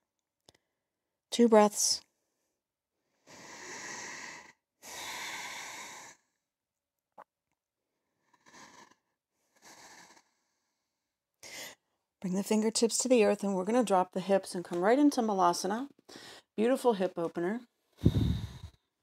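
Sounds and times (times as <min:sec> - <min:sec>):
woman breathing deeply: 0:03.2 - 0:06.3, 0:18.0 - 0:18.8.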